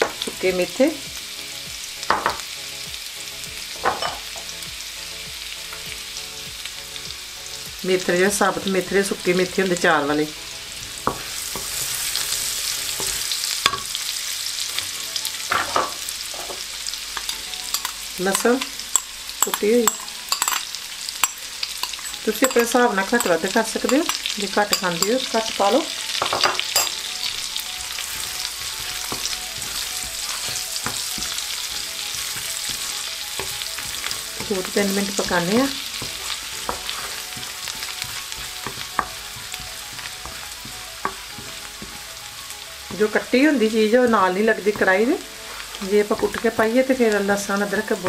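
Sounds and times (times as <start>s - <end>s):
spices sizzling in a pan: 0.0s - 48.0s
spoon clicking against a pan: 17.2s - 20.6s
spoon clicking against pan: 17.2s - 25.2s.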